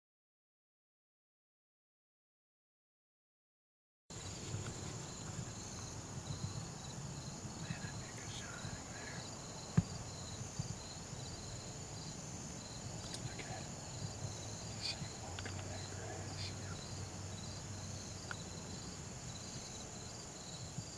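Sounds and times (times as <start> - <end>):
insect high trill: 4.1 - 20.9
insect pulsing chirp: 4.1 - 20.9.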